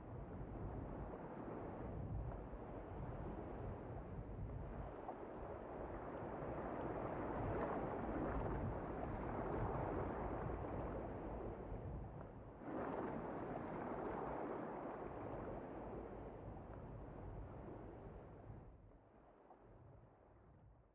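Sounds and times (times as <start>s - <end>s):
rushing sea water: 4.8s - 11.8s, 12.4s - 18.4s.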